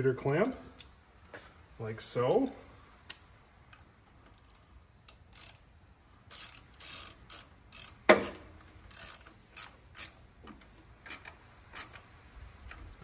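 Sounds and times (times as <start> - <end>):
ratchet wrench clicking: 2.4 - 13.0.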